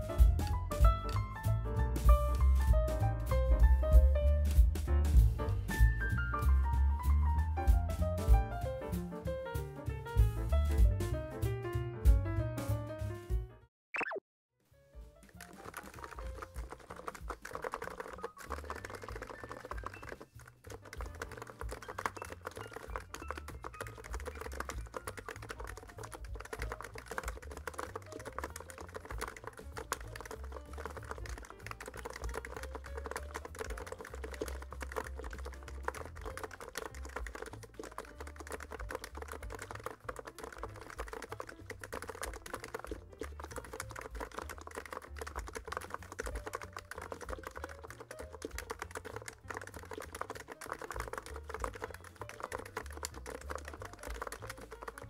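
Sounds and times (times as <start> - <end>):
fast keyboard typing: 15.2 - 55.0.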